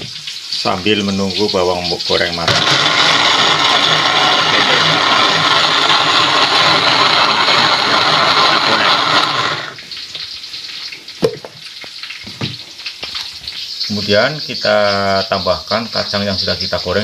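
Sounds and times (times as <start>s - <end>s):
blender motor grinding: 2.3s - 9.8s.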